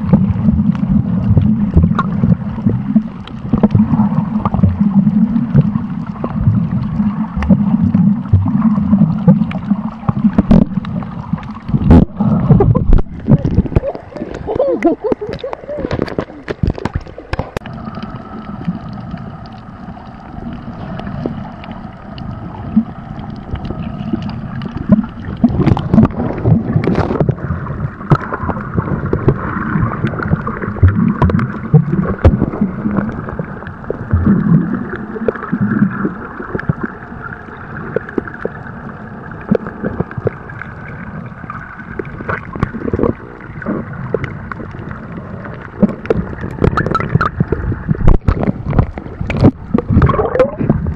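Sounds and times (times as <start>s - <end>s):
muffled underwater gurgling wash: 0.0s - 50.9s
small clicks and crackles: 0.0s - 50.9s
faint steady hum: 17.5s - 50.9s.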